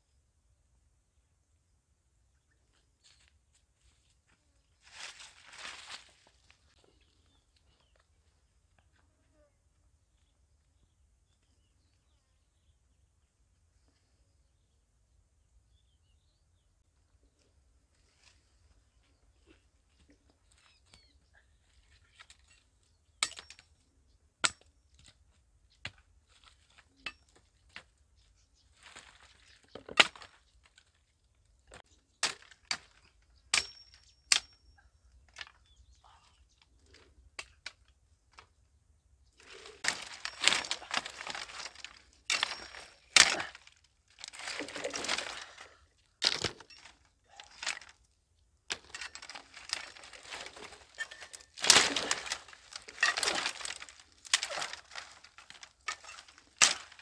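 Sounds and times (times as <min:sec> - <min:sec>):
brushwood rustling: 0:02.6 - 0:09.0, 0:25.0 - 0:34.6, 0:35.2 - 0:57.0
dry sticks cracking and snapping: 0:39.4 - 0:45.6, 0:46.2 - 0:48.0, 0:48.7 - 0:57.0.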